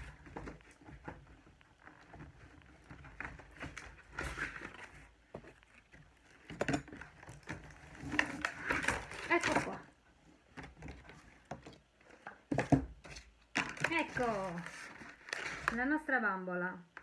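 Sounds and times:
cardboard box rustling and scraping: 0.0s - 15.8s.

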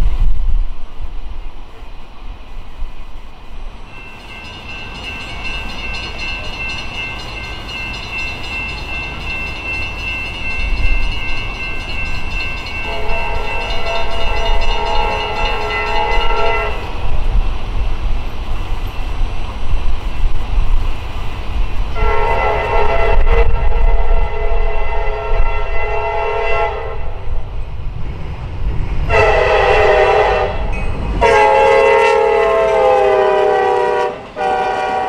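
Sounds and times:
low rumble of train: 0.0s - 35.0s
locomotive air horn: 12.8s - 16.9s, 22.0s - 27.2s, 29.1s - 35.0s.

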